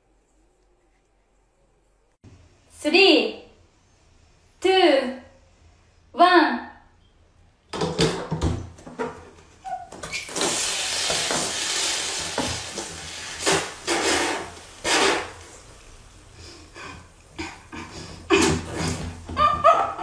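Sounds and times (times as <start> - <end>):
soda fizzing hiss: 10.3 - 17.3.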